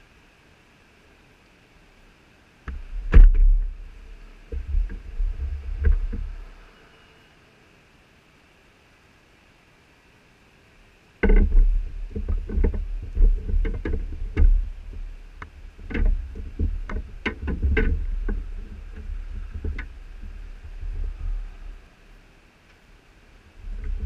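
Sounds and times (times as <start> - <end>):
low rumble: 11.5 - 22.4.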